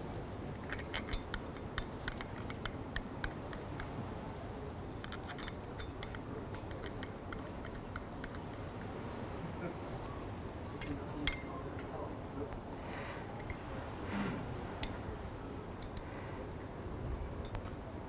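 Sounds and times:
allen key clicking in hex screws: 0.6 - 3.9, 4.9 - 8.9, 15.8 - 16.6.

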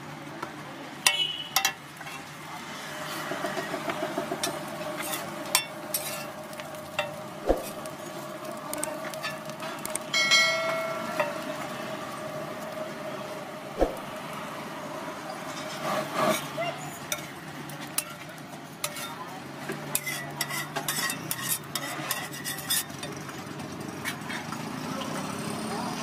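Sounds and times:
metal spatula scraping on griddle: 1.0 - 11.6, 15.3 - 23.2, 24.0 - 24.5
bread sizzling: 1.0 - 24.8.

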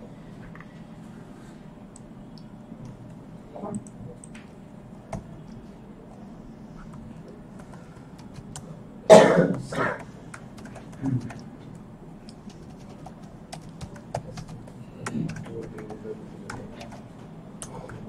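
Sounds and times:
computer keyboard typing: 6.8 - 8.7, 10.0 - 18.0
person coughing: 9.1 - 10.0.

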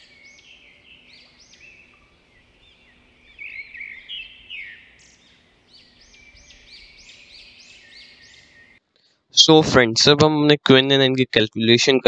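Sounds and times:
small birds chirping: 0.0 - 9.2.

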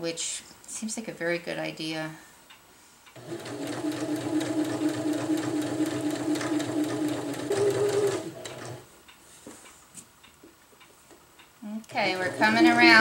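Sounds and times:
sewing machine stitching: 3.2 - 8.8, 11.9 - 13.0.

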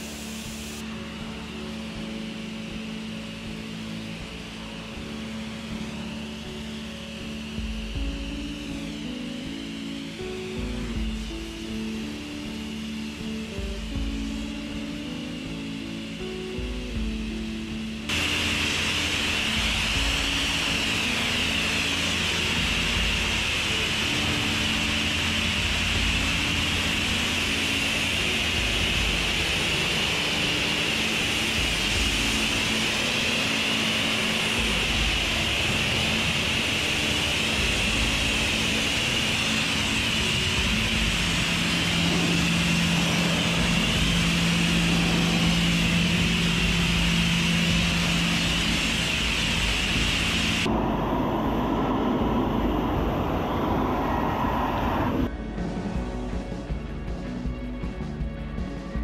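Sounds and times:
low hum: 0.0 - 58.0
pressure washer spraying water: 18.1 - 55.1.

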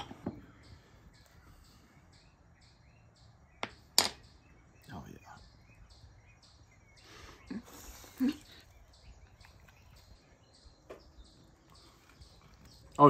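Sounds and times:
quiet chewing: 7.6 - 13.0.

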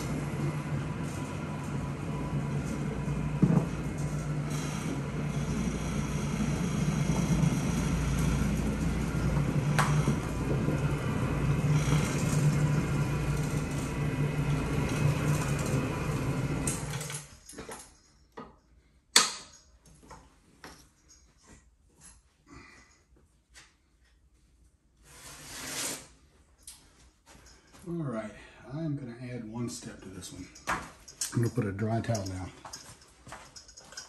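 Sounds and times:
floor machine motor hum: 0.0 - 17.3.

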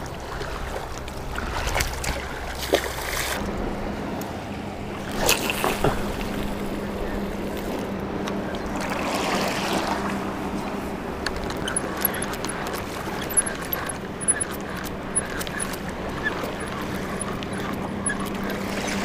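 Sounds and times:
water noise: 0.0 - 19.0
wind: 0.0 - 19.0
light ticks and clicks: 11.2 - 19.0.

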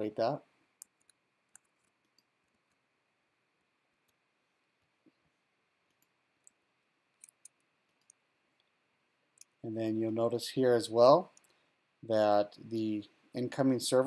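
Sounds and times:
computer mouse clicks: 0.8 - 2.8, 7.2 - 8.7.

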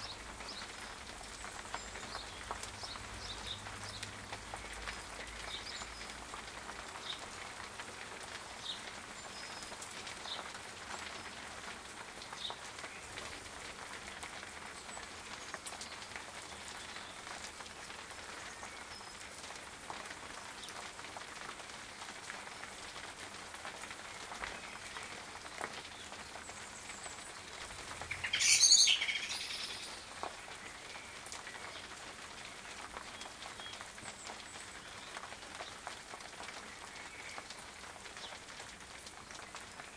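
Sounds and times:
rain falling on pond: 0.0 - 39.9
faint bird chirps: 28.1 - 30.0.

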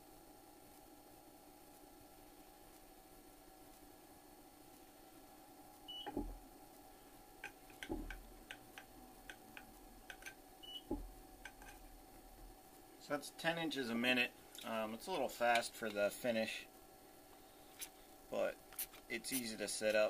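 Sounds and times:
dull thumps: 6.0 - 6.4, 7.7 - 8.4, 10.8 - 11.6.

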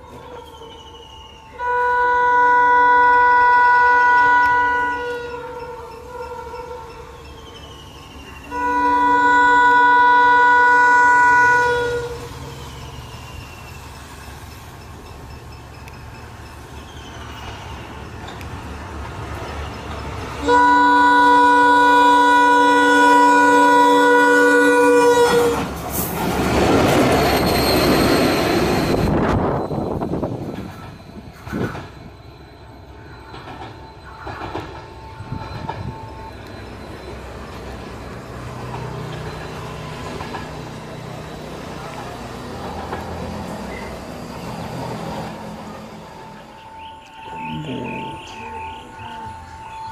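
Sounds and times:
train passing with engine rush: 0.0 - 49.9
locomotive air horn: 1.5 - 7.0, 8.5 - 12.4, 20.4 - 25.8
rail clacks: 11.3 - 49.9.

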